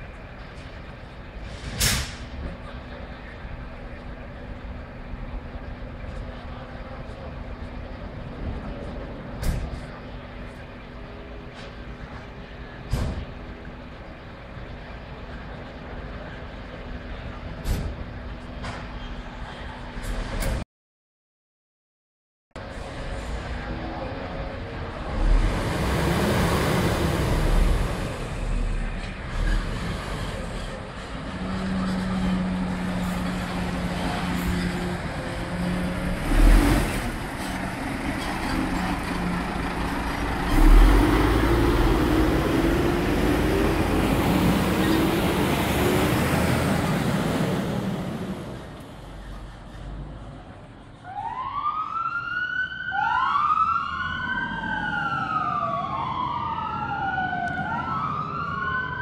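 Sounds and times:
fire truck diesel engines: 0.0 - 20.6, 22.6 - 59.0
siren wailing: 51.0 - 59.0.

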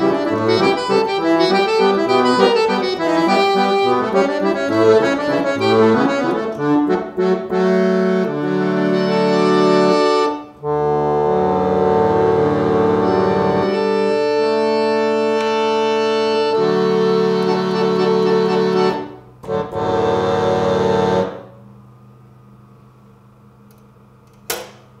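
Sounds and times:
reed organ chords: 0.0 - 21.5
sharp click: 23.7 - 24.9.

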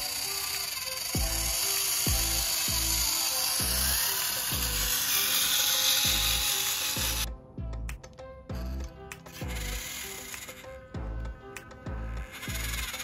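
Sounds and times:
electric motor whirring: 0.0 - 7.3, 8.5 - 13.0
music with deep beat: 1.2 - 5.0, 6.0 - 9.8, 10.8 - 13.0.

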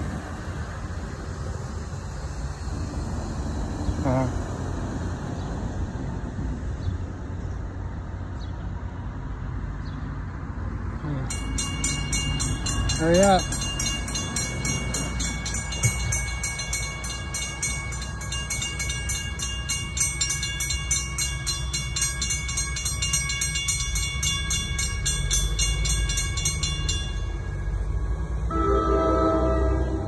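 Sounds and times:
railroad crossing bell ringing: 11.1 - 30.0
train horn: 28.4 - 30.0.

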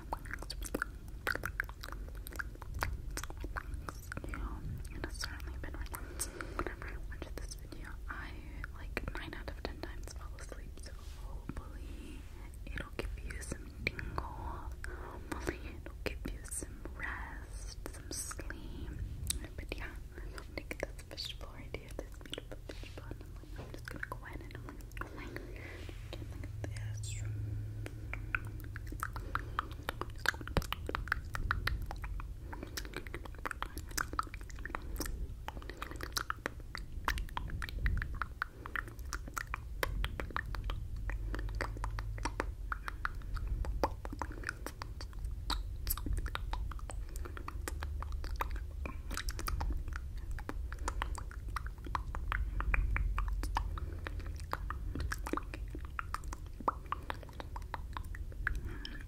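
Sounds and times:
wet mouth clicks and smacks: 0.0 - 11.8, 12.4 - 59.0
low rumble: 0.0 - 59.0.

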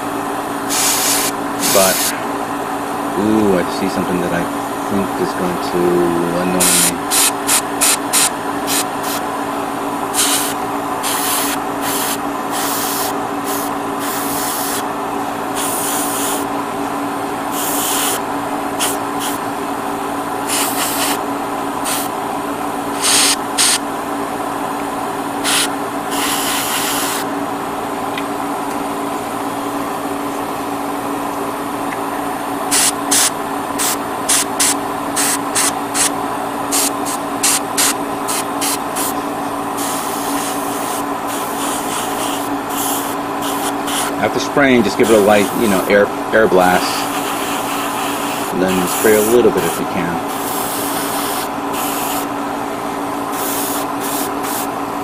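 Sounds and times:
machine hum: 0.0 - 55.0
airbrush spraying hiss: 0.7 - 2.1, 6.6 - 9.2, 10.2 - 14.8, 15.6 - 16.5, 17.5 - 18.2, 18.8 - 19.4, 20.5 - 21.2, 21.8 - 22.1, 23.0 - 23.8, 25.4 - 27.3, 32.7 - 36.1, 36.7 - 39.1, 39.8 - 44.1, 45.0 - 45.9, 46.8 - 52.3, 53.3 - 54.7.

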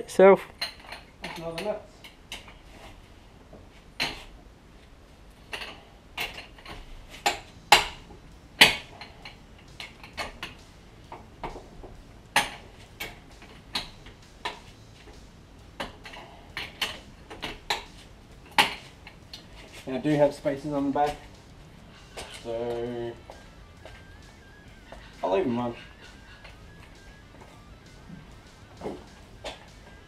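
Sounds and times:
hand tools clinking on metal: 0.6 - 2.6.

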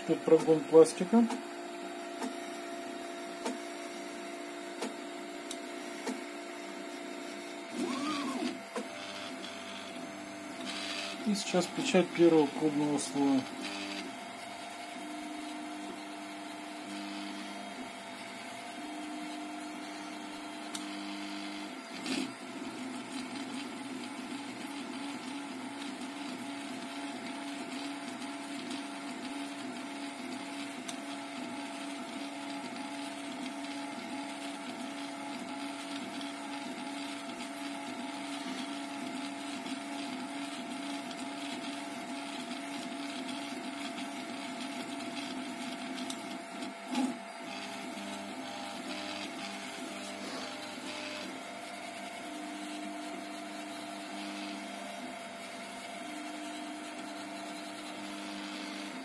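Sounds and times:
stepper motors singing tones: 0.0 - 14.2.

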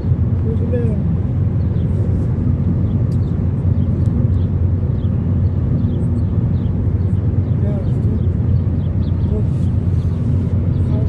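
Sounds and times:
moving vehicle rumble: 0.0 - 11.0.

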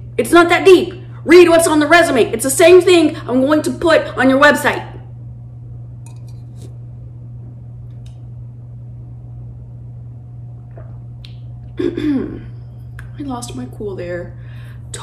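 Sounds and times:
low electrical hum: 0.0 - 15.0
person sipping: 10.7 - 11.2.

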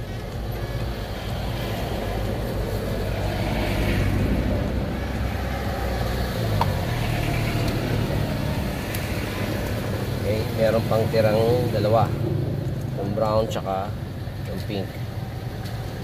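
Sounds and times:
motor vehicle rumble: 0.0 - 16.0.

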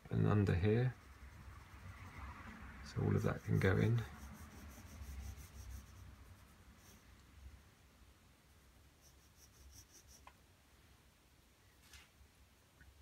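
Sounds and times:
pencil scratching on paper: 0.6 - 2.2, 3.0 - 7.1, 9.0 - 10.3.

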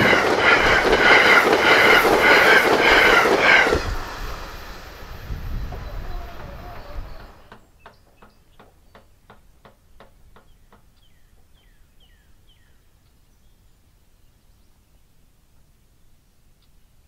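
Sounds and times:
bird chirping: 5.6 - 9.3, 10.4 - 15.1.

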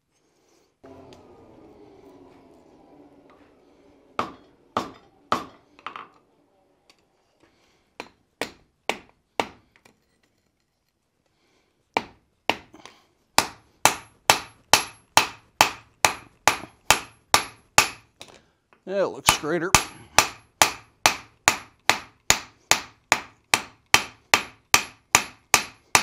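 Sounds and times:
hammer striking hot metal on anvil: 4.2 - 5.6, 13.4 - 18.0, 19.2 - 26.0.

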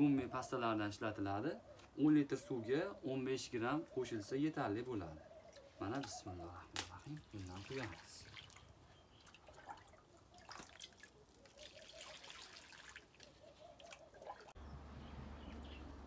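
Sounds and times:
liquid trickling onto soil: 5.5 - 14.6.

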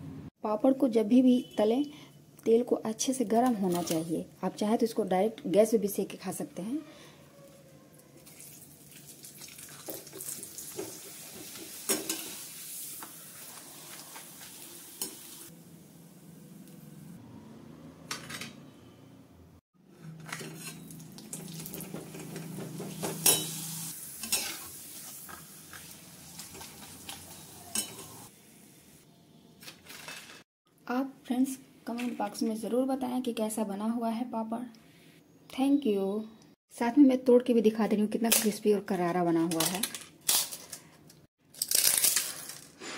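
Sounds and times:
food sizzling in hot oil: 8.2 - 16.1, 20.9 - 29.0.

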